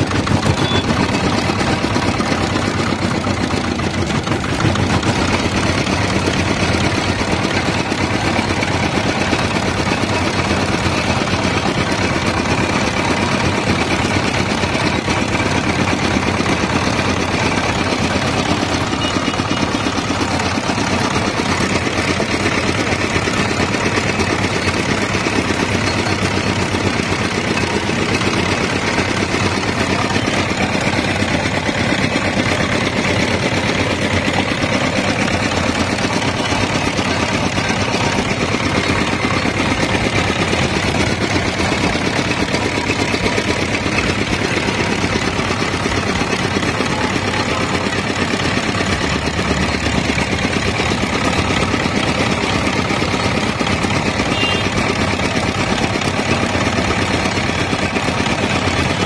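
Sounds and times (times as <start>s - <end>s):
engine idling: 0.0s - 59.0s.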